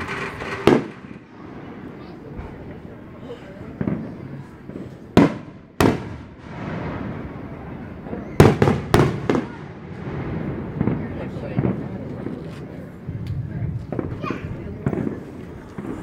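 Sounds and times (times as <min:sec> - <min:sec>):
firework shells bursting: 0:00.0 - 0:01.9.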